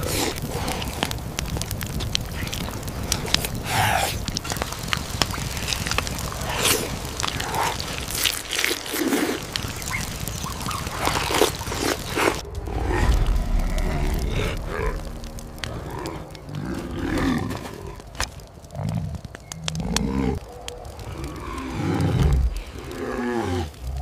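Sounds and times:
campfire crackling: 0.0s - 24.0s
deep growling rumble: 12.2s - 18.2s.

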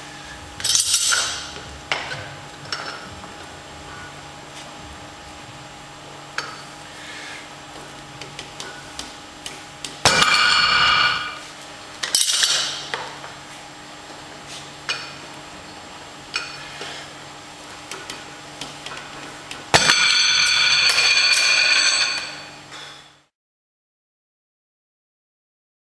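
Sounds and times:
weight plates clanging: 10.1s - 11.5s.

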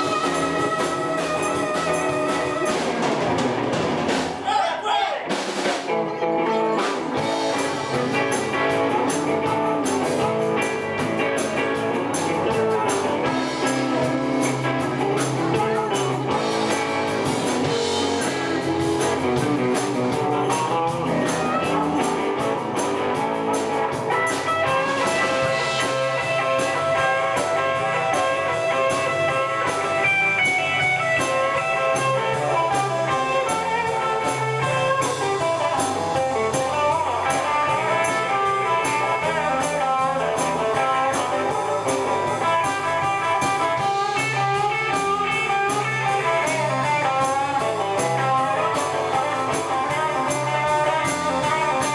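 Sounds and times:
amplified harmonica: 0.0s - 3.3s, 23.4s - 51.9s
electric guitars: 0.0s - 4.5s, 5.2s - 51.9s
drum kit steady beat: 0.0s - 51.9s.

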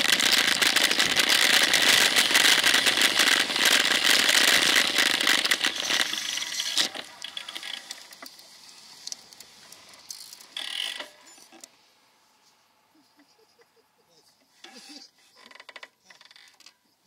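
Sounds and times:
bicycle rattling and ticking: 0.0s - 8.3s.

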